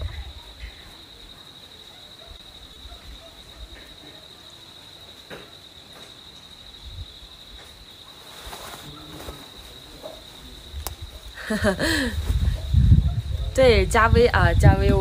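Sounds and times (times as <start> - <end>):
woman speaking: 13.5 - 15.0.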